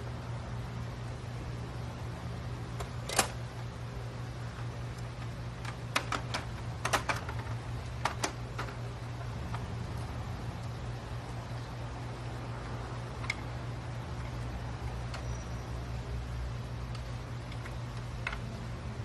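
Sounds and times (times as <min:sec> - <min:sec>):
steady low hum: 0:00.0 - 0:19.0
plastic clicks and clacks: 0:04.9 - 0:09.7, 0:16.9 - 0:18.5.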